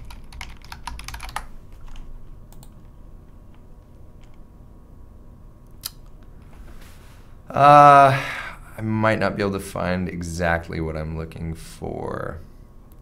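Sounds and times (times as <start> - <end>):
typing on computer keyboard: 0.0 - 2.8.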